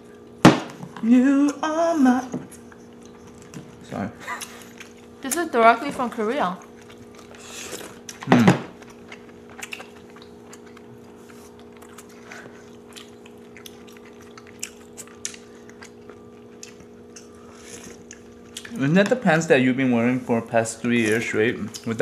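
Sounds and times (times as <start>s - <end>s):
faint steady hum: 0.0s - 22.0s
sipping and chewing mouth sounds: 6.6s - 18.8s.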